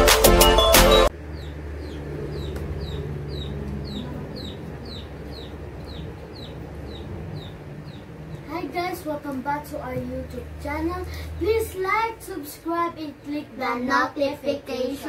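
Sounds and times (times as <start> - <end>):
low background hum: 1.1 - 15.0
chick peeping: 1.2 - 8.4.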